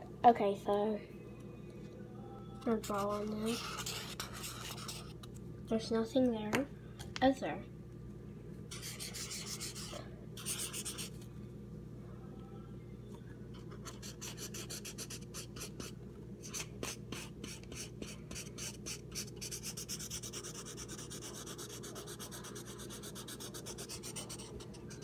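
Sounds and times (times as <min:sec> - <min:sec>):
marker scribbling on paper: 0:02.8 - 0:05.2, 0:08.7 - 0:11.1, 0:13.8 - 0:25.0.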